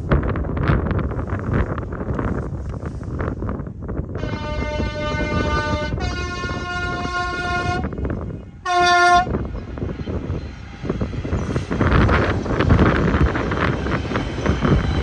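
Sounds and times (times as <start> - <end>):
train rumbling: 0.0 - 15.0
two-tone train horn: 4.2 - 8.0, 8.6 - 9.4.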